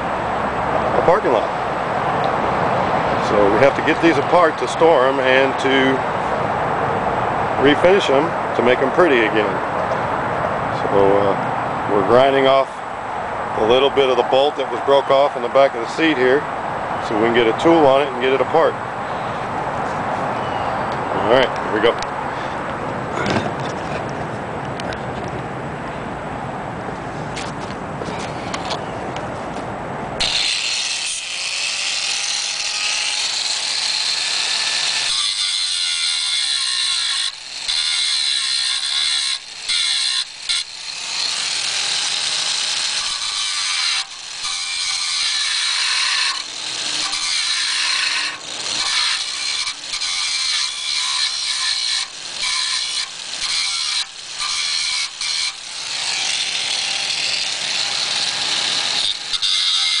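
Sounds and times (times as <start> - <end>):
angle grinder grinding metal: 3.2 - 6.3, 13.6 - 16.4, 17.0 - 19.5, 30.2 - 60.0.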